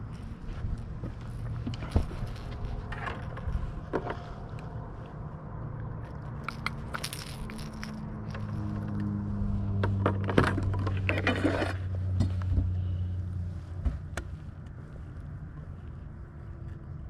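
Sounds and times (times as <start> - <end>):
handling clicks knocks and scrapes: 0.0 - 5.2, 5.8 - 12.7
low steady rumble: 0.0 - 17.0.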